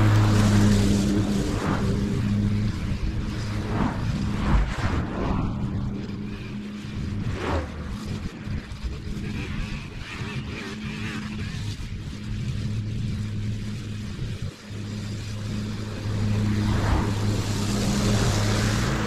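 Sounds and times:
small petrol engine running: 5.6 - 19.0.

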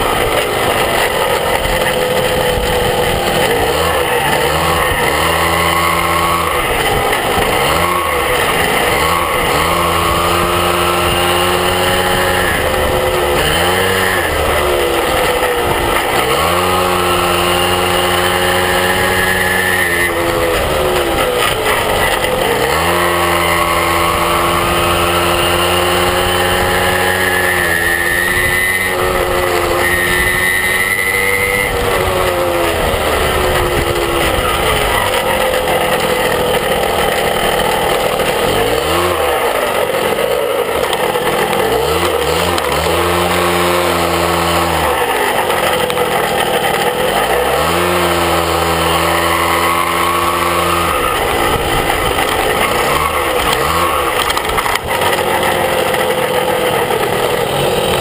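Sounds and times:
wind noise on microphone: 0.0 - 35.4, 49.0 - 54.9
small motorbike engine revving: 0.0 - 58.0.

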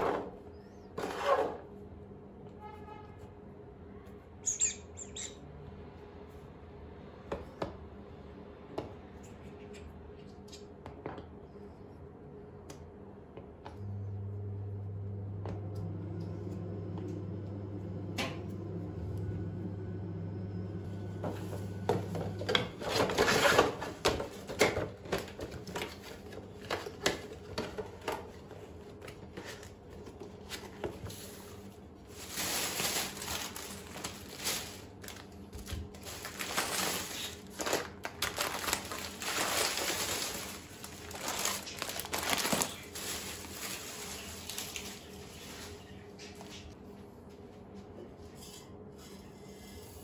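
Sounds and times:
steady low hum: 7.8 - 22.8
plastic bag rustling: 21.3 - 46.0.

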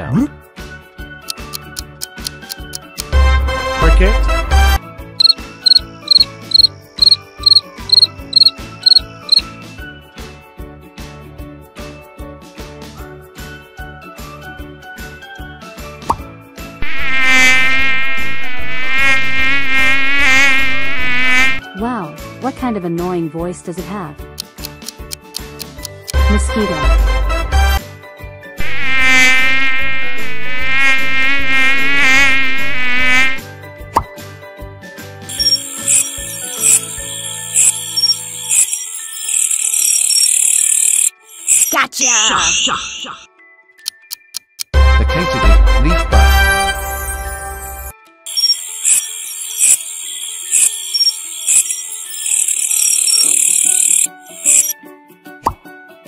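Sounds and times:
light background music: 0.0 - 16.8, 21.4 - 28.6, 33.4 - 49.0
cricket chirping: 5.2 - 9.4, 35.3 - 41.8, 48.3 - 54.7.

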